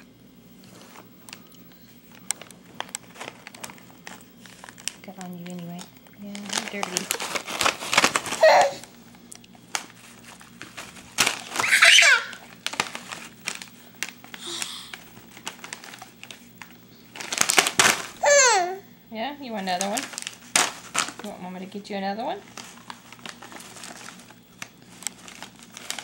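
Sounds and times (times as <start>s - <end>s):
plastic snack bag crinkling: 0.6s - 18.8s, 19.4s - 26.0s
baby squealing: 8.4s - 8.8s, 11.6s - 12.4s, 18.2s - 18.8s.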